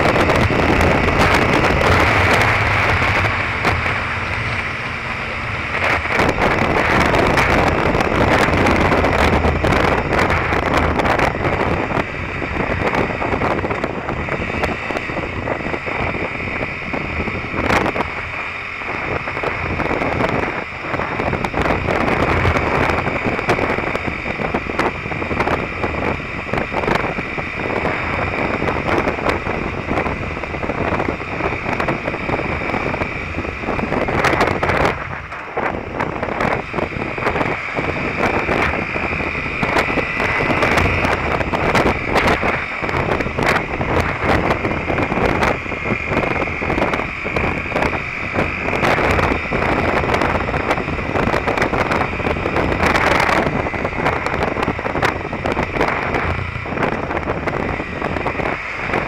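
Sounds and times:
motorcycle engine cruising: 0.0 - 59.0
wind buffeting microphone: 0.0 - 59.0.

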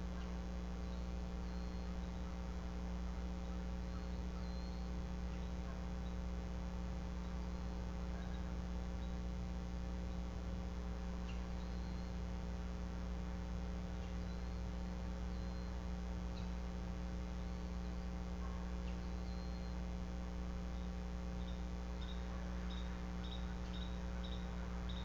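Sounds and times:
electrical mains hum: 0.0 - 25.0
faint high chirps: 0.8 - 2.4, 3.4 - 6.3, 11.2 - 12.2, 14.0 - 16.6, 18.8 - 19.8, 20.8 - 25.0.

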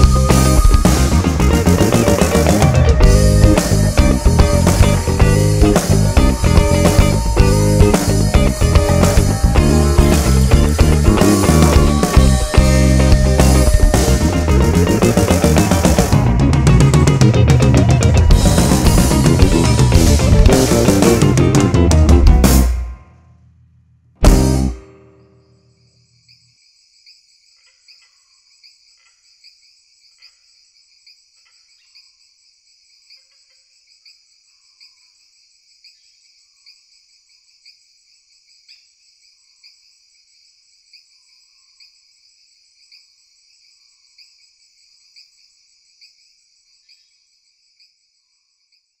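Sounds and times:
crickets chirping: 0.0 - 16.4
short lower chirps: 0.0 - 22.2.

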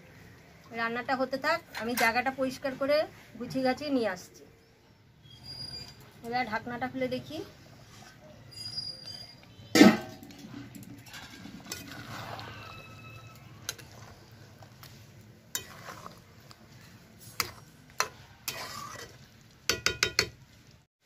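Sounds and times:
metal spatula scraping pan: 1.6 - 3.3, 7.1 - 20.4
spatula tapping pan: 19.7 - 20.4.

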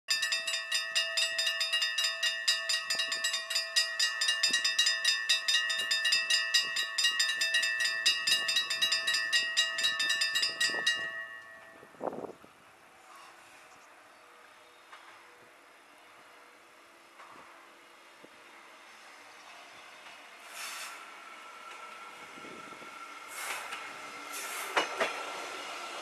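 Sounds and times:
level crossing warning bells: 0.1 - 12.5.

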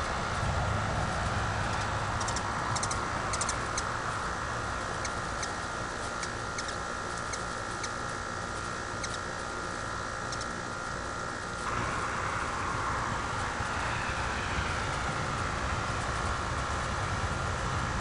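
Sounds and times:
hummingbird chip notes: 0.0 - 17.8
steady background hum: 0.0 - 18.0.

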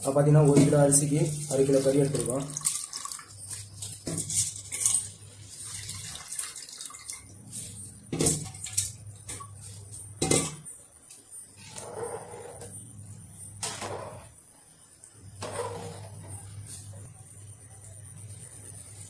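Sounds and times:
rice poured into liquid splashing: 1.2 - 3.9, 5.5 - 7.3.

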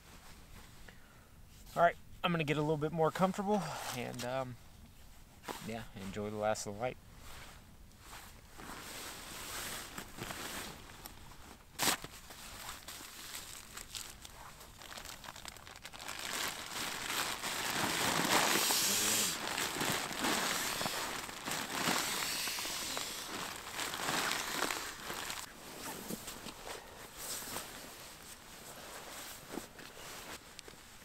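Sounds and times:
fabric crinkling and rustling: 7.2 - 31.0.

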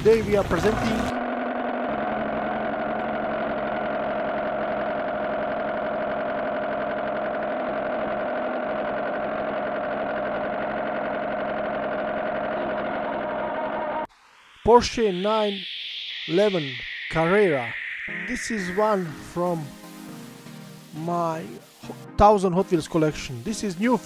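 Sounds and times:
car engine idling: 0.0 - 14.0.

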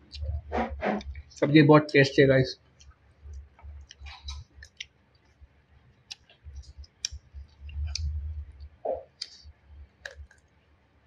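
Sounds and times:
chewing mouth clicks and smacks: 2.8 - 5.4, 6.0 - 10.5
low rumble: 7.6 - 8.7.

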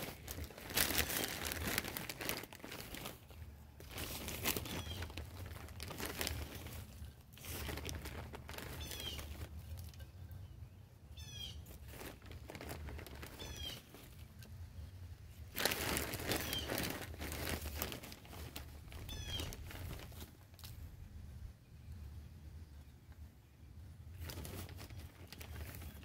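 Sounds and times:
soil and dry leaves rustling: 0.0 - 26.0
small bird chirping: 4.6 - 5.4, 8.6 - 11.8, 13.3 - 14.0, 19.0 - 19.6.

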